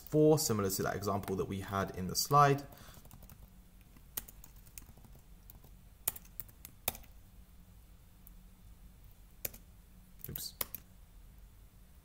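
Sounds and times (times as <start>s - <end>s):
computer keyboard typing: 2.9s - 7.2s, 9.4s - 10.8s.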